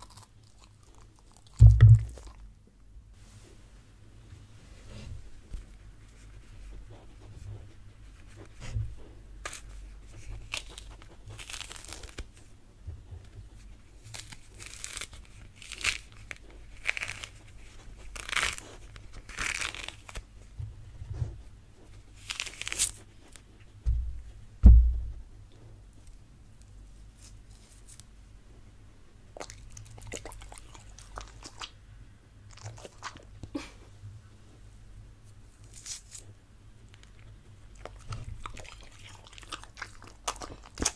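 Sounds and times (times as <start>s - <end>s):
low thumps: 1.6s - 2.3s, 23.8s - 25.3s
fruit peel tearing and crackling: 9.4s - 12.4s, 14.0s - 20.3s, 22.2s - 23.4s, 35.6s - 36.2s.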